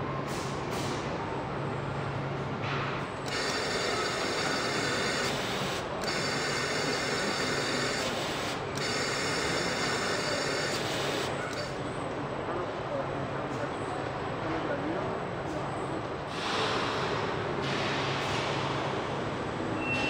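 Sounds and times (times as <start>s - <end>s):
machinery humming: 1.3s - 12.4s
high machine whine: 3.1s - 12.2s.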